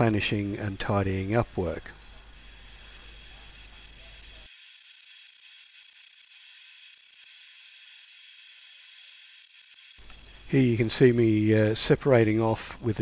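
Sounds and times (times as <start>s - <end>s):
faint steady hiss: 0.0s - 4.5s, 10.0s - 13.0s.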